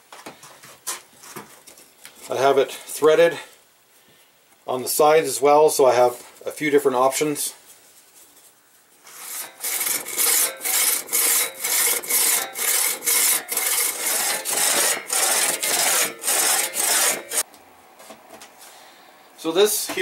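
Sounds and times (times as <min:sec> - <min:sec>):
hand saw cutting a log: 0:09.1 - 0:17.4.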